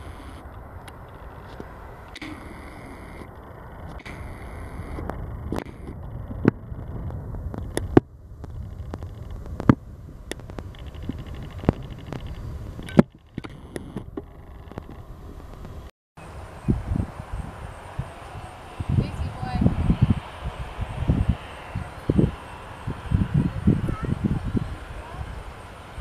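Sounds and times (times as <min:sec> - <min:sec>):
jet engines rumbling: 0:00.0 - 0:26.0
sharp pops: 0:01.6 - 0:03.3, 0:03.9 - 0:15.8.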